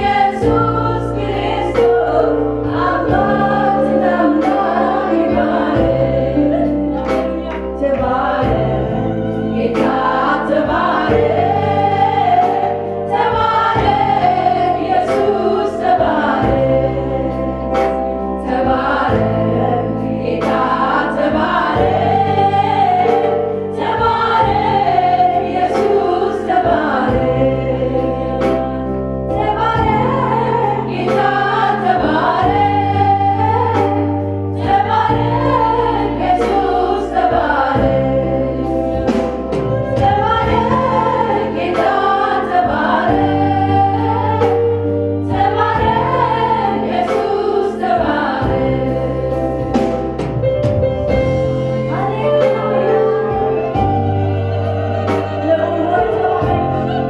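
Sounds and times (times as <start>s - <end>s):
choir voices: 0.0s - 57.0s
instrumental backing: 0.0s - 57.0s
sustained bass notes: 0.0s - 57.0s.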